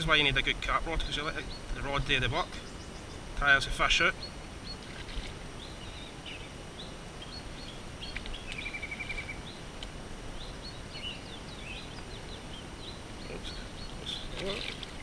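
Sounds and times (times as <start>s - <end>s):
low outdoor background rumble: 0.0s - 15.0s
small birds chirping: 0.7s - 15.0s
bird trill: 5.6s - 9.6s.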